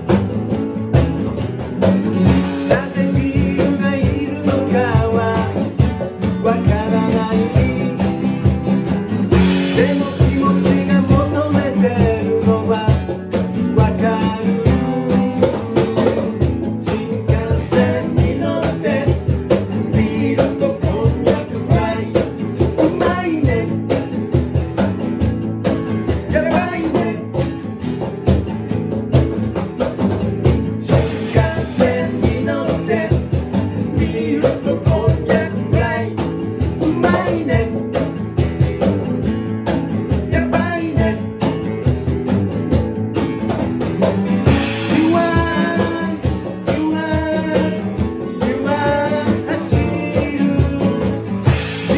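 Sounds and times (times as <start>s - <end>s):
cajon beat: 0.0s - 51.9s
guitars strumming chords: 0.0s - 51.9s
person singing: 2.3s - 5.8s, 6.4s - 8.5s, 9.3s - 24.0s, 26.3s - 27.4s, 30.8s - 38.0s, 44.5s - 51.9s.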